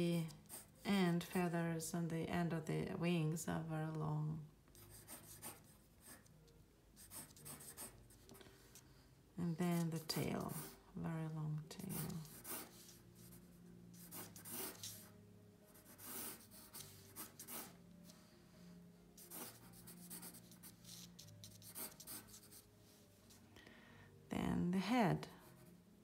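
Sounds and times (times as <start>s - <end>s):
pencil sketching on paper: 0.2s - 1.5s, 4.8s - 6.3s, 7.0s - 8.8s, 9.6s - 10.9s, 11.8s - 18.6s, 19.2s - 22.7s.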